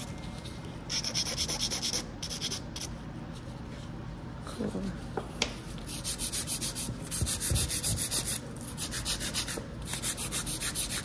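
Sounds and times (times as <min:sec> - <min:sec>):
nail file scraping a nail: 0:05.9 - 0:11.0.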